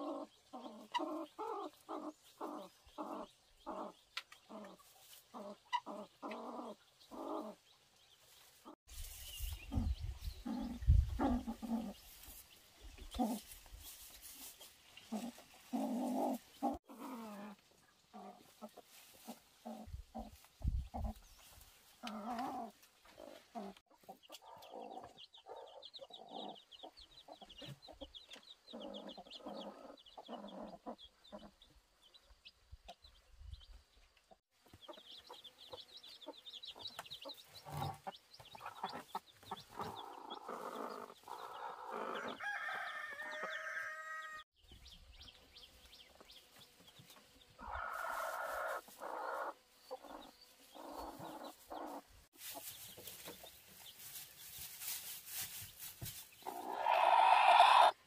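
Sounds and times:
chickens clucking: 0.0s - 58.0s
rooster crowing: 42.1s - 44.5s.

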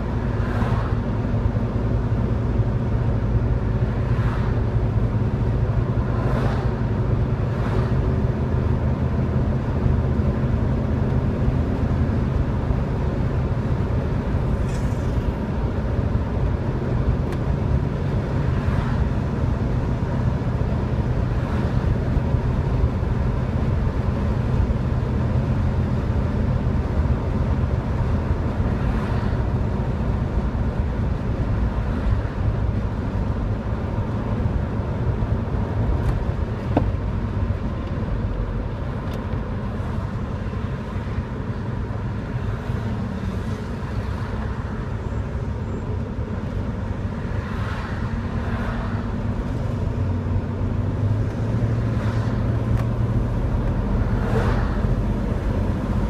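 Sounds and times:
passing cars whooshing: 0.0s - 1.0s, 3.7s - 8.3s, 17.6s - 19.9s, 46.6s - 56.0s
car engine drone: 0.0s - 56.0s
tyre and road noise: 0.0s - 56.0s.

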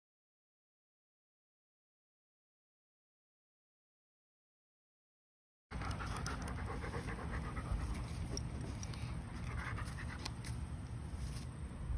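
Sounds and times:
dog panting: 5.7s - 10.6s
steady low rumble: 5.7s - 11.9s.

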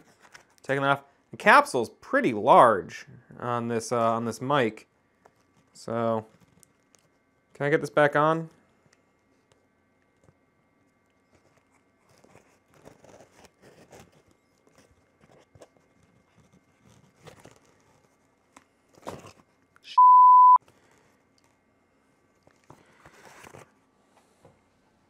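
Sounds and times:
fingers rustling foam windscreen: 11.3s - 19.5s
steady beep: 19.9s - 20.6s.

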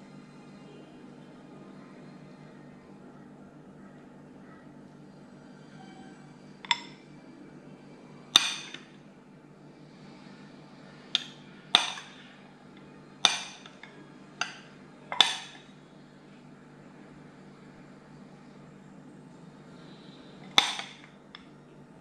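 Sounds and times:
drinking glass clinking: 6.7s - 7.0s, 11.2s - 12.2s, 13.3s - 15.6s, 20.5s - 21.1s.

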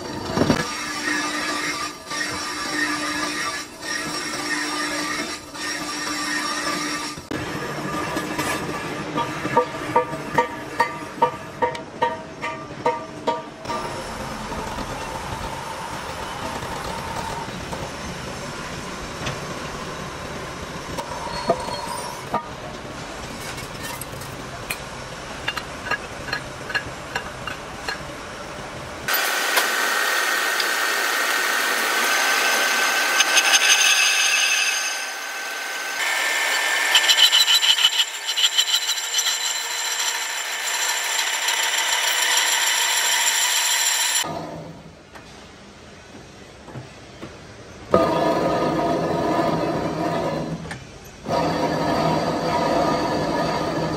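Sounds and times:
power tool whining: 29.1s - 44.3s.

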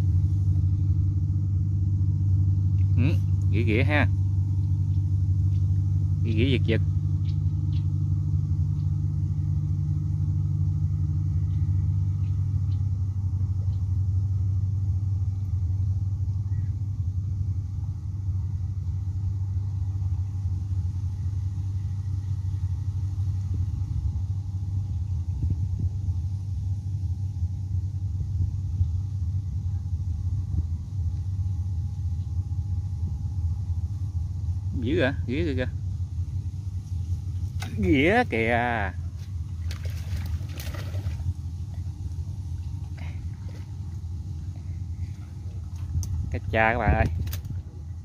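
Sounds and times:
engine rumbling: 0.0s - 48.0s.

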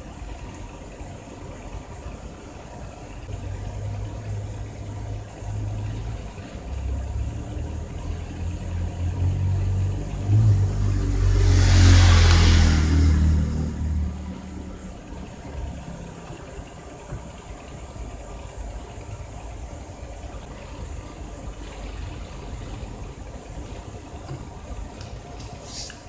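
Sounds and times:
vehicle driving past: 6.7s - 16.5s.

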